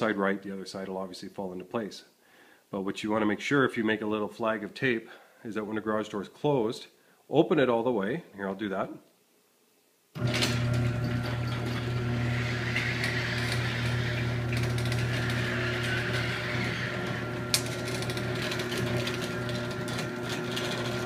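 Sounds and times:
garage door opener motor hum: 10.2 - 21.0.

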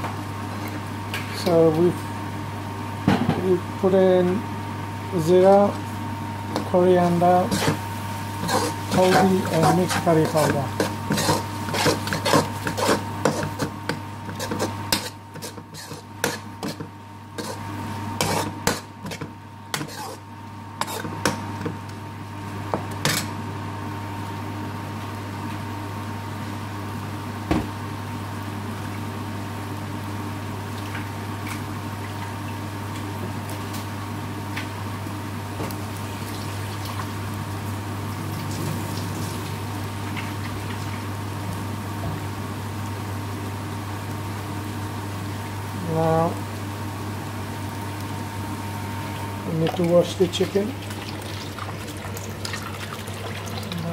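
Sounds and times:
onions sizzling: 6.4 - 23.4, 34.8 - 53.9
metal spoon scraping steel pan: 8.4 - 13.7, 14.3 - 16.8, 18.2 - 19.2, 19.8 - 20.2.

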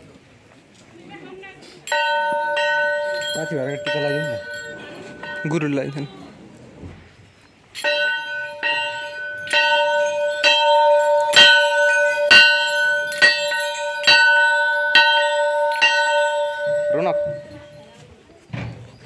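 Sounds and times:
large temple bell ringing: 1.9 - 6.4, 7.8 - 18.0.

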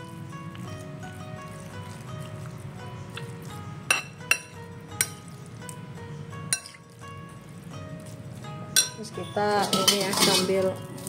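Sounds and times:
metal spoon clinking against bowl: 3.9 - 5.2, 8.8 - 10.8.

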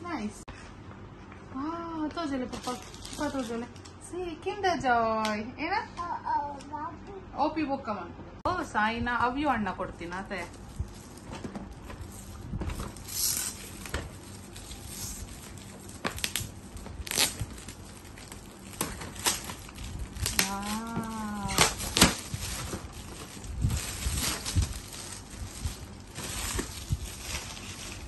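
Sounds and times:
gift wrap crinkling and tearing: 2.5 - 3.9, 10.4 - 28.0.

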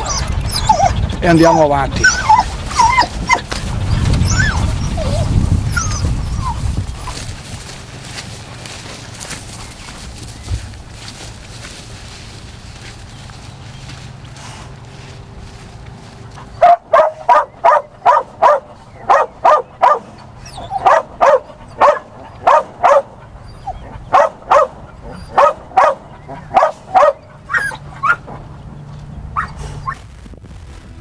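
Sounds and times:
dog barking: 16.6 - 28.2.

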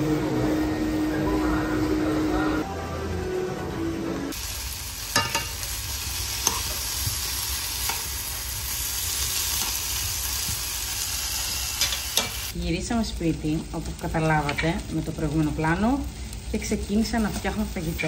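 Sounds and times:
potatoes sizzling in oil: 4.3 - 18.0.

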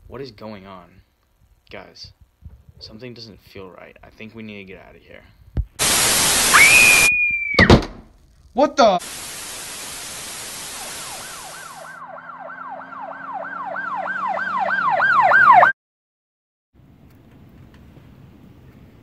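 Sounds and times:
tv static hiss: 5.8 - 7.1, 8.9 - 11.9
emergency vehicle yelp siren: 6.5 - 7.5, 10.6 - 15.8.

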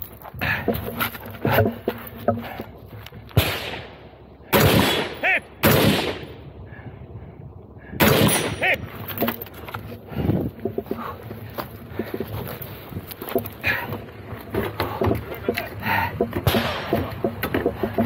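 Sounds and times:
loud gunshots: 3.4 - 6.4, 8.0 - 8.6, 16.5 - 16.9.

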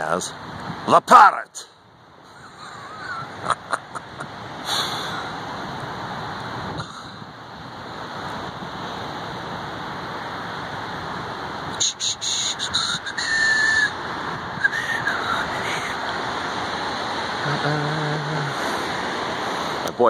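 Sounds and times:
ocean surf: 0.0 - 20.0
wind: 0.0 - 20.0
bird calls: 2.3 - 5.3.

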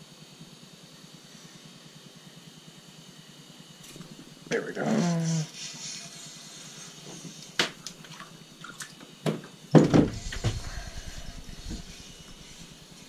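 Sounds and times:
loud thump: 9.8 - 10.8.

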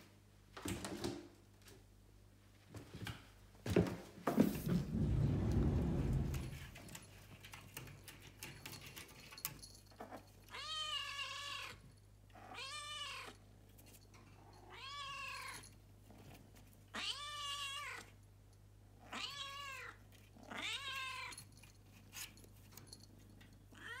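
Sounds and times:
cat meowing: 12.4 - 13.4, 14.6 - 15.6, 16.9 - 18.1, 19.0 - 21.4, 23.8 - 24.0.

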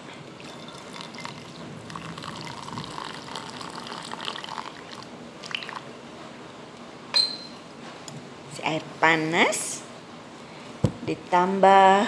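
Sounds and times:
water pouring into a ceramic bowl: 0.4 - 5.9.

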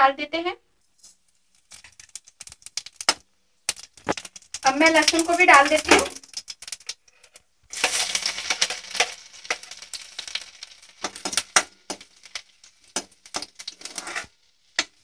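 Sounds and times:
garlic sizzling in hot oil: 1.0 - 15.0
spatula scraping pan: 7.8 - 10.4, 13.3 - 14.9.

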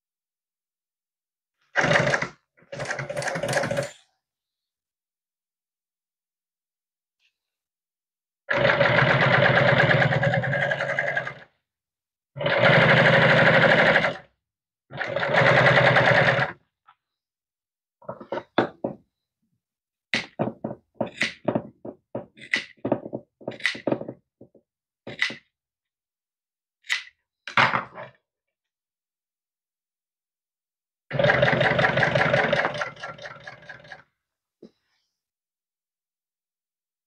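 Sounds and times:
industrial sewing machine stitching: 1.8 - 3.9, 8.5 - 11.5, 12.4 - 14.3, 14.9 - 16.6, 31.1 - 34.0.

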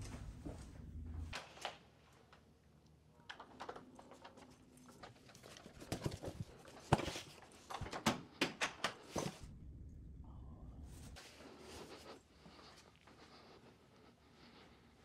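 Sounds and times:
footsteps on wooden floor: 0.0 - 1.4.

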